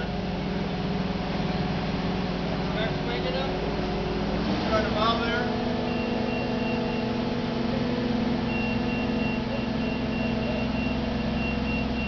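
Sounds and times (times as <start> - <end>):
heavy vehicle engine running: 0.0 - 12.0
warning beeper high beeps: 5.9 - 7.2, 8.4 - 12.0.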